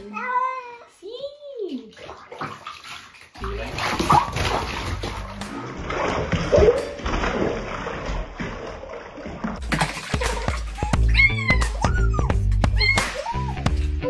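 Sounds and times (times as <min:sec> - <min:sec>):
bathwater splashing: 0:01.6 - 0:13.9
cat crying: 0:10.8 - 0:13.6.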